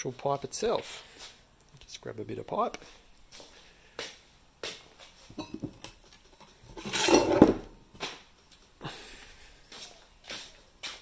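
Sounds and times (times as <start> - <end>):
pipe scraping on workbench: 6.7 - 7.7.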